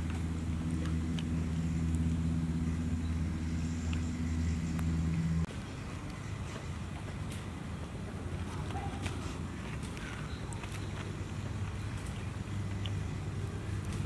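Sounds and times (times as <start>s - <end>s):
motor humming: 0.0s - 7.8s.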